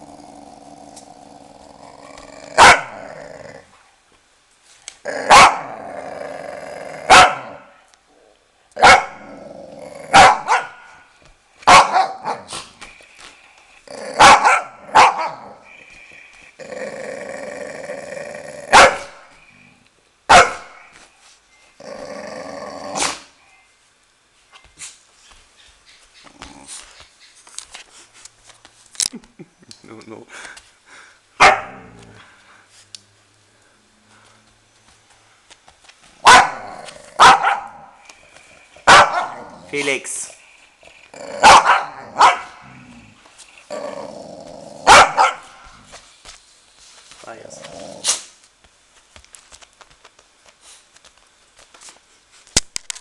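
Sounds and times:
dogs growling: 0.0 - 3.8, 5.0 - 7.6, 9.2 - 10.2, 13.6 - 19.9, 21.8 - 23.3, 26.2 - 27.0, 30.9 - 32.6, 36.5 - 46.0, 47.5 - 48.3
dogs barking and snapping: 0.9 - 1.2, 35.5 - 39.8, 47.9 - 48.5.

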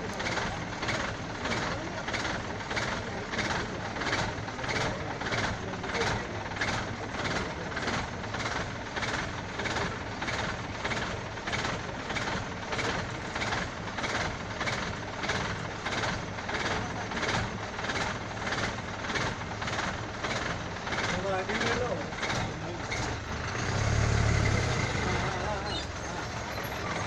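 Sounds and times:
vehicle engine running: 0.0 - 27.0.

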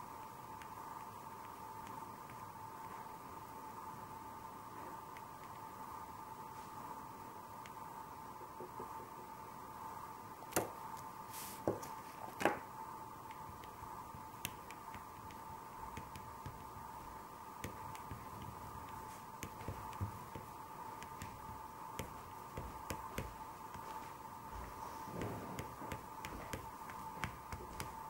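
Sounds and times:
faint steady whine: 0.0 - 28.0
soft taps and clicks: 13.3 - 16.9, 17.6 - 28.0.

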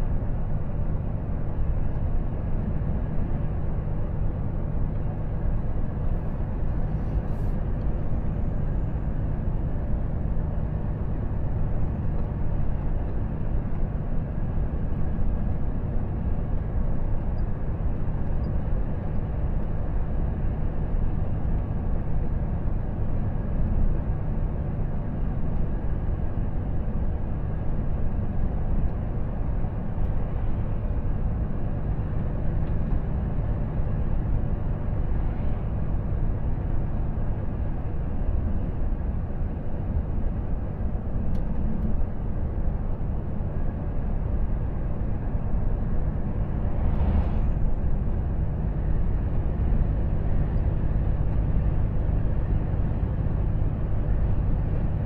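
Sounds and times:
diesel truck engine cruising: 42.0 - 55.0
tyre and road noise: 45.6 - 50.5.

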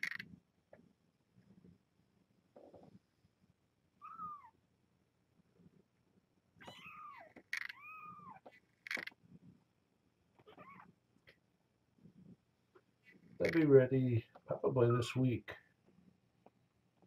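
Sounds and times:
kittens mewing: 4.0 - 4.6, 10.4 - 10.9
sharp clicks: 8.8 - 9.2.

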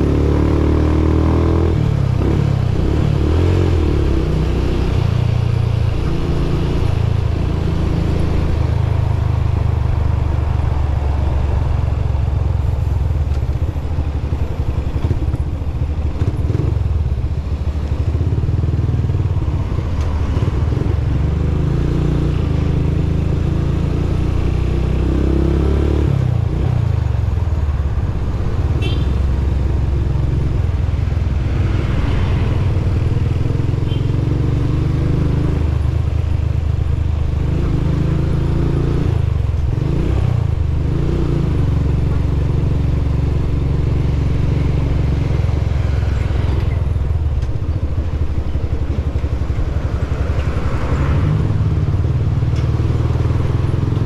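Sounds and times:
motorcycle engine revving: 0.0 - 9.5, 28.7 - 54.0.

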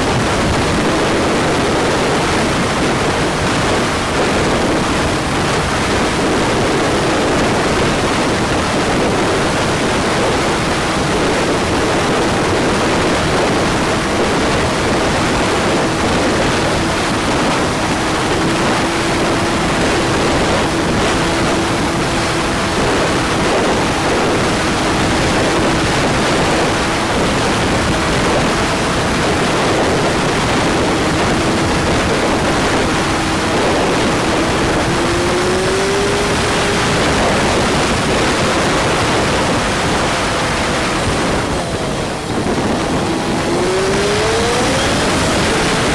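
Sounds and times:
motorcycle engine drone: 0.0 - 45.9
wind rushing over microphone: 0.0 - 45.9.

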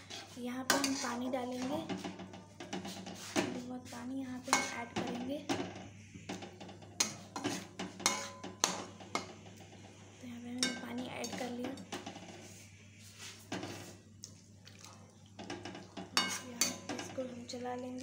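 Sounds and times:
metal spatula clinking against pan: 7.0 - 9.3, 10.6 - 11.5, 16.1 - 17.2.

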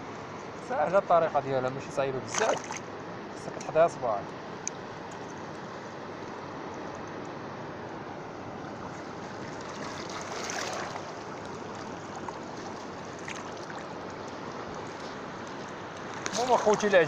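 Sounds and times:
sea water washing over rocks: 8.9 - 17.0.

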